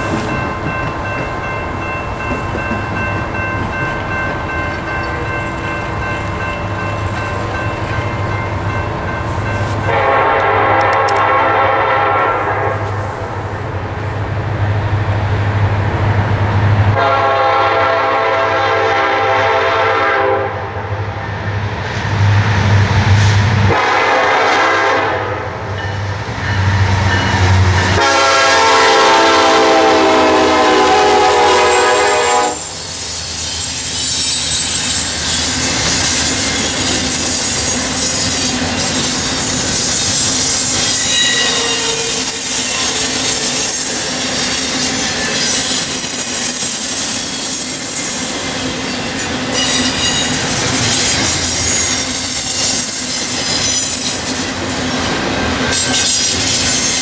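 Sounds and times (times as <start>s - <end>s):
train wheels squealing and clattering: 0.0s - 8.3s, 31.7s - 57.0s
diesel locomotives droning: 0.0s - 57.0s
train horn chord: 9.8s - 13.0s, 17.0s - 20.9s, 23.7s - 25.6s, 27.9s - 32.8s.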